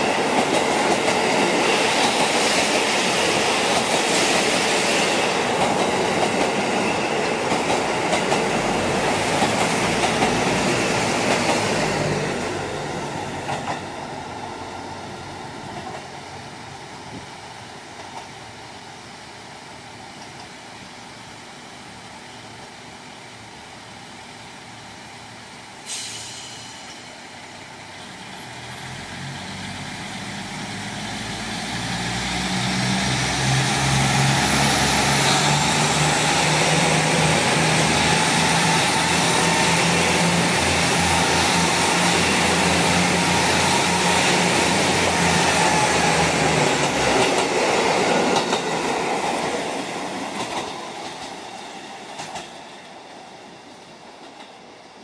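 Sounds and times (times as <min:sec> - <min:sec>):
train wheels on rails: 0:00.0 - 0:55.0
diesel train engine revving: 0:28.6 - 0:48.9.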